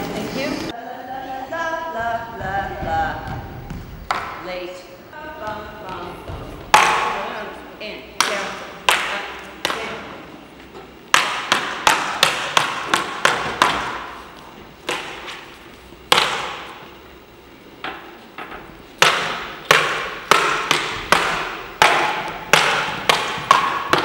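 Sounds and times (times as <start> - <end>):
prop swords clashing: 5.4 - 7.4, 11.1 - 14.2, 14.8 - 16.8, 19.0 - 24.0.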